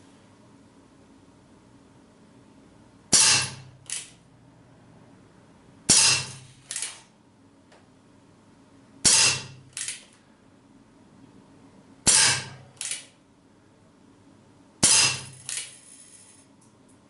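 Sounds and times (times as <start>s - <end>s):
air revolver shots: 3.1s - 4.1s, 5.9s - 6.9s, 9.0s - 9.9s, 12.1s - 13.1s, 14.8s - 15.6s.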